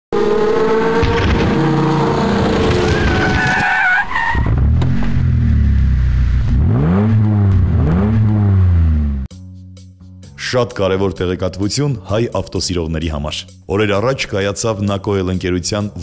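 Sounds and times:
car engine revving: 0.1s - 3.6s, 4.4s - 9.3s.

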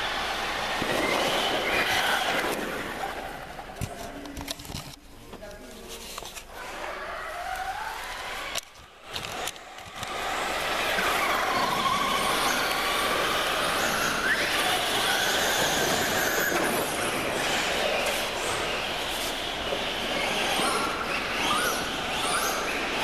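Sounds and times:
model car motors whining: 6.4s - 23.0s.

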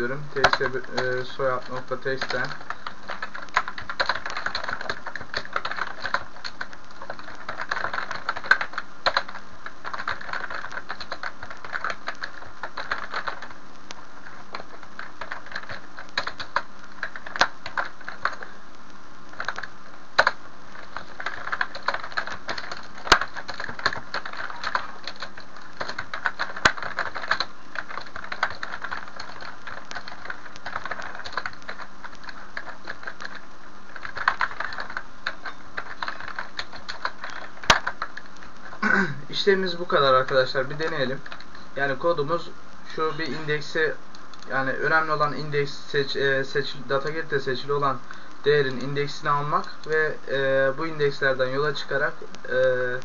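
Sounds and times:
keyboard typing: 0.0s - 18.6s, 19.3s - 42.4s.

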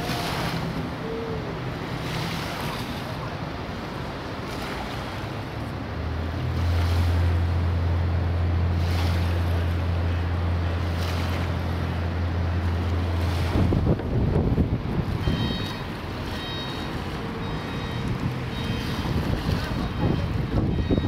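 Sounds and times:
ferry diesel engine drone: 0.0s - 21.0s
water wash from wake: 0.0s - 21.0s
wind on microphone: 13.3s - 16.2s, 17.2s - 21.0s.

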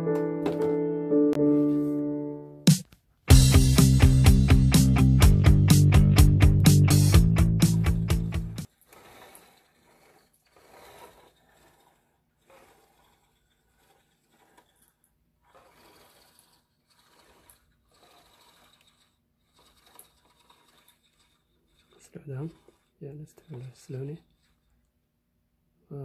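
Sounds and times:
faint mechanical whirring: 8.6s - 26.0s.

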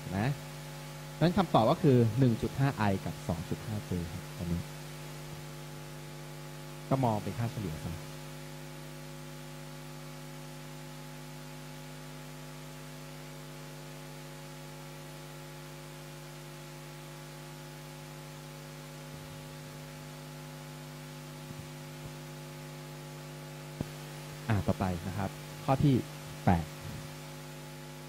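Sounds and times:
electrical hum: 0.0s - 28.0s
faint hiss: 20.9s - 27.8s.

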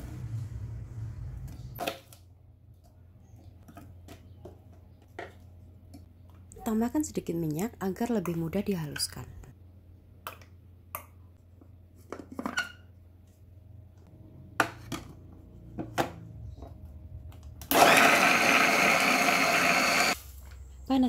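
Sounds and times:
electric food chopper whirring: 17.6s - 20.2s.

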